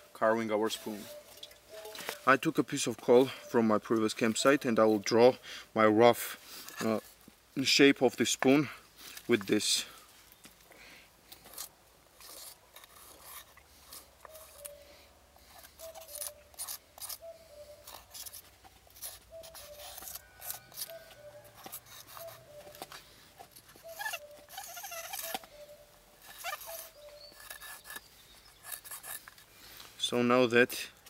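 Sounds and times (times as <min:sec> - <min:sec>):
charcoal scratching on wood: 0:11.4 - 0:14.8, 0:15.4 - 0:29.5.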